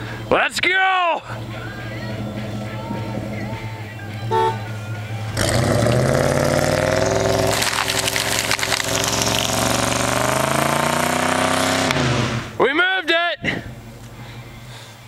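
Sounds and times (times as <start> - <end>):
pickup engine revving hard: 5.3 - 12.6
tyres spinning in snow and mud: 5.4 - 11.1.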